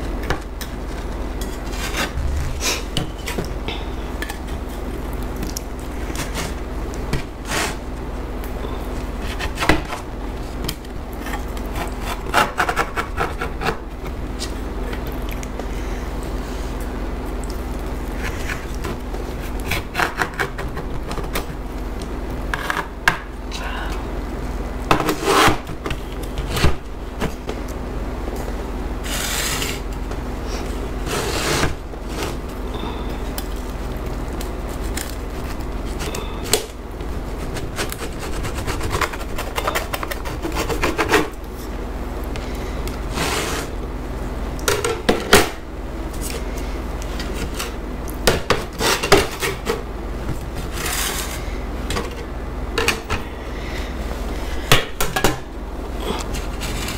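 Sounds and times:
pizza crust crackling and crunching: 0.1 - 3.6, 4.3 - 44.6
metal scraper scraping slate board: 31.1 - 32.3.

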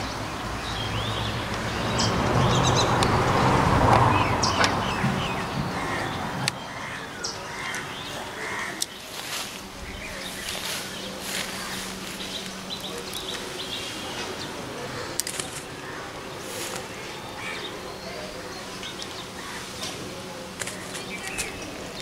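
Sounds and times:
birds calling: 0.0 - 22.0
broad rushing noise: 0.0 - 22.0
crows cawing: 4.8 - 20.1.

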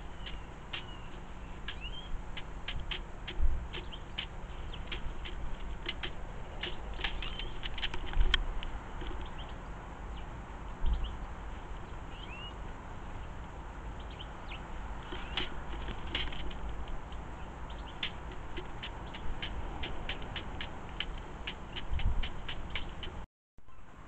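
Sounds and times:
small birds chirping: 0.0 - 24.0
pigeon pecking on wood: 0.2 - 8.4, 15.0 - 17.2, 17.8 - 23.2
dull low thumps: 17.8 - 23.2.

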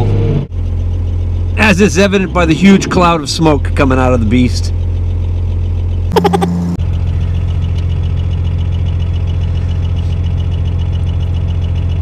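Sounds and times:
diesel engine idling: 0.5 - 12.0.

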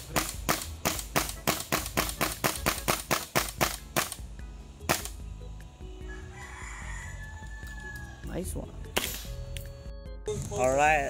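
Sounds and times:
airsoft rifle shots: 0.0 - 5.2, 9.0 - 9.4.

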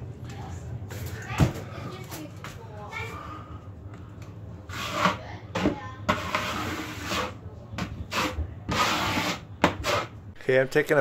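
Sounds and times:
taping knife scraping compound: 4.6 - 10.2.

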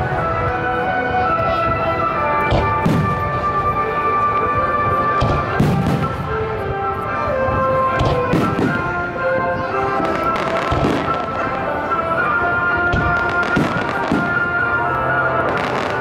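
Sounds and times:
music playing: 0.0 - 16.0
fireworks bursting with sharp bangs: 2.5 - 3.5, 5.2 - 6.4, 7.6 - 11.7, 12.8 - 14.8, 15.4 - 16.0.

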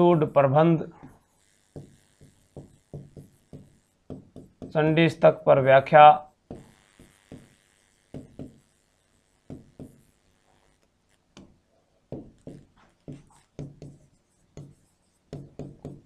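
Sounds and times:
marker squeaking on whiteboard: 12.2 - 16.0.

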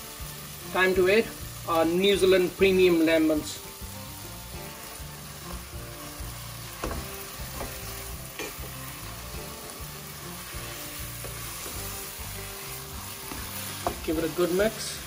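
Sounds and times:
meat sizzling in a pan: 0.0 - 15.0
spoon knocking on pan: 6.8 - 8.6, 13.2 - 14.1
wooden spoon stirring: 10.4 - 15.0.

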